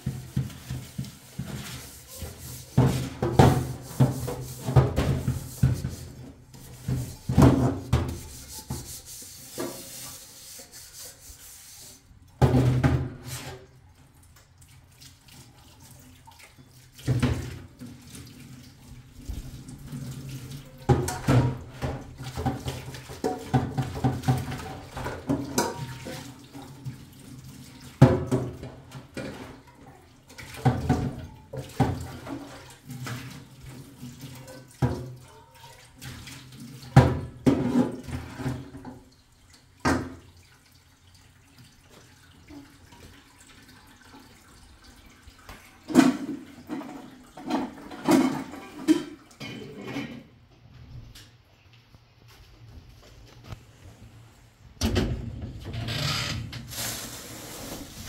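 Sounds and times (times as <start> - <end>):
pots clanking against steel sink: 0.0 - 11.0, 19.5 - 29.7, 30.4 - 39.1, 45.4 - 50.4
metal pot being scrubbed: 0.0 - 12.1
water running from a hose: 56.7 - 58.0.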